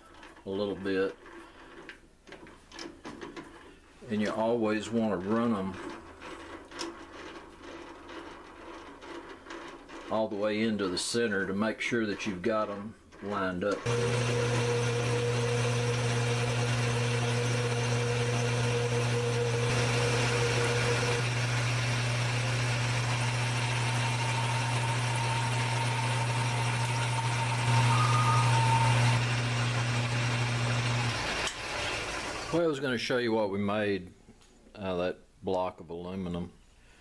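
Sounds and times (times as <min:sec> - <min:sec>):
metal lathe running: 0:13.8 - 0:32.6
faint high cutting tone: 0:27.7 - 0:29.1.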